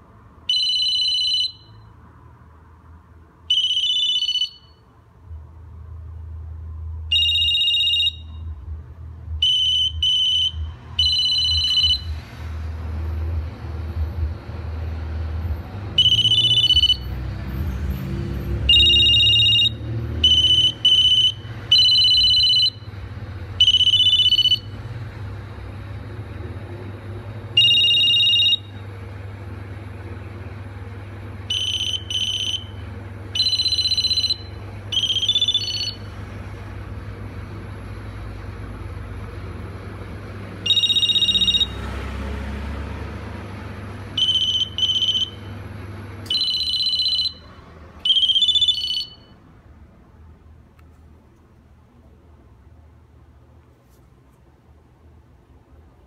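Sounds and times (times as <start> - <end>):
phone two-tone electronic trill: 3.5 - 4.8, 7.1 - 8.5, 9.4 - 12.1, 16.0 - 17.1, 18.7 - 22.9, 23.6 - 24.8, 27.6 - 28.8, 31.5 - 32.7, 33.4 - 36.1, 40.7 - 41.8, 44.2 - 45.4, 46.3 - 49.4.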